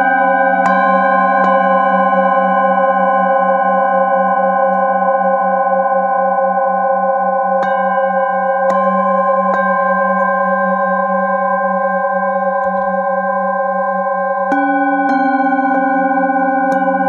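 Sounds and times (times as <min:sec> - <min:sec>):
singing bowls ringing: 0:00.0 - 0:17.0
mallet strikes on bowls: 0:07.5 - 0:17.0.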